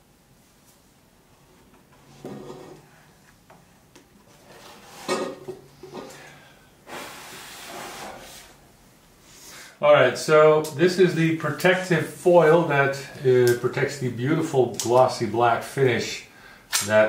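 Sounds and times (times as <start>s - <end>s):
person blowing: 6.1s - 8.6s.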